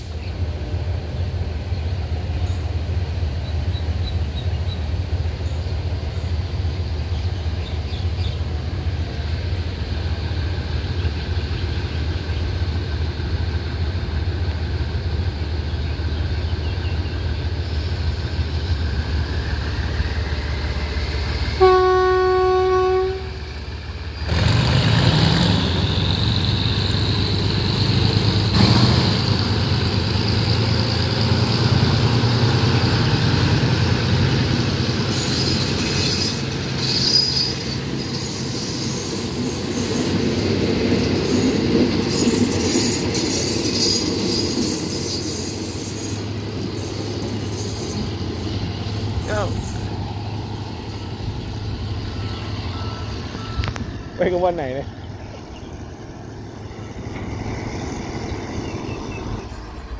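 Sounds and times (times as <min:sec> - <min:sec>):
diesel locomotive engine throttling: 0:00.0 - 0:59.9
train horn blast: 0:21.5 - 0:23.6
wheel squeals: 0:35.1 - 0:41.5.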